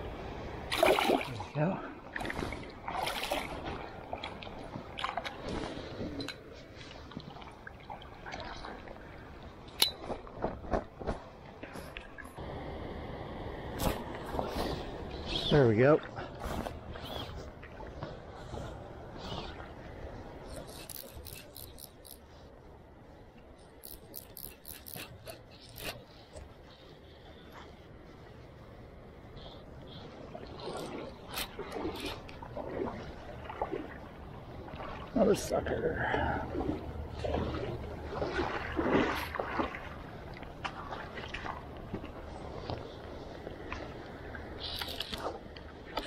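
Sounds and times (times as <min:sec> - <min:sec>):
water splashing and dripping: 0:00.7 - 0:10.8, 0:36.2 - 0:42.8
steady low rush: 0:12.4 - 0:15.2.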